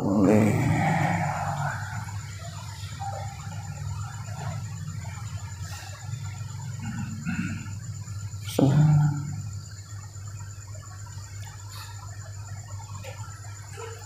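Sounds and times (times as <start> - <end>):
high-pitched whine: 0.0 - 14.0
steady low hum: 0.0 - 14.0.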